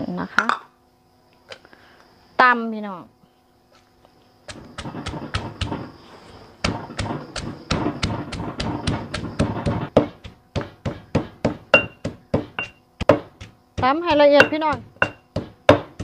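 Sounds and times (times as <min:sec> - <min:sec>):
wooden pestle pounding in mortar: 0:04.5 - 0:06.0, 0:06.6 - 0:16.0.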